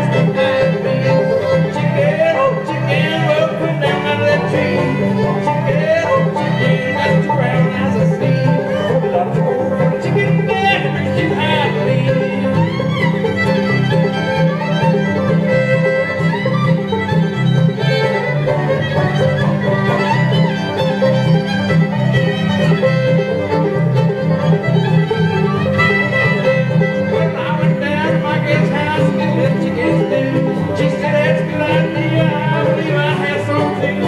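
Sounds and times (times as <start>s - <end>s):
banjo: 0.0s - 34.0s
fiddle: 0.0s - 34.0s
guitar: 0.0s - 34.0s
upright bass: 0.0s - 34.0s.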